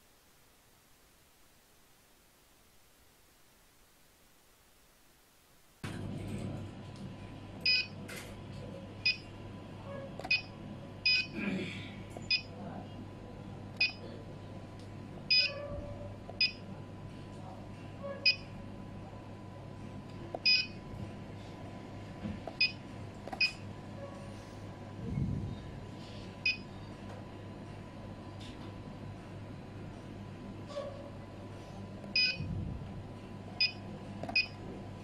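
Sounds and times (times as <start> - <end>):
touchscreen beeps: 20.4 - 20.8, 32.2 - 32.4.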